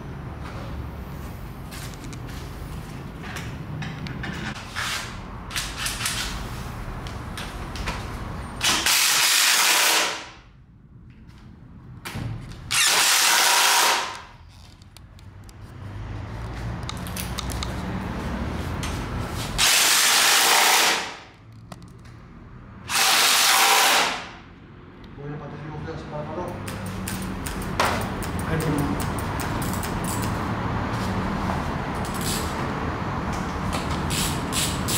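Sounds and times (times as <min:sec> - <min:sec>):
clicks and handling noise: 0:14.1 - 0:15.8, 0:16.4 - 0:17.9, 0:21.3 - 0:22.2.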